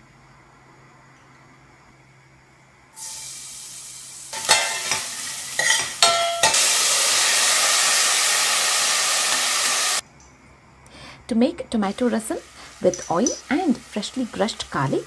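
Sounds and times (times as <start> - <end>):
garlic sizzling in hot oil: 3.0 - 10.0, 11.8 - 15.0
spoon clinking against pot: 5.6 - 6.6.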